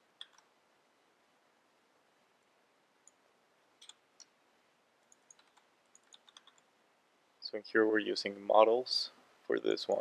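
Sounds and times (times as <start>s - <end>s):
computer keys clicking: 0.2s - 0.5s, 3.8s - 4.3s, 5.0s - 6.7s.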